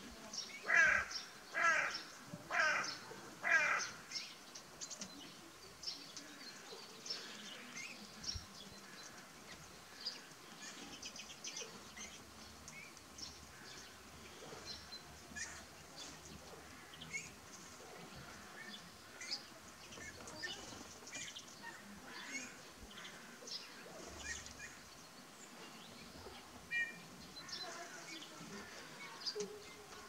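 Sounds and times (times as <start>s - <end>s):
small birds chirping: 0.0s - 30.0s
crow cawing: 0.7s - 4.0s.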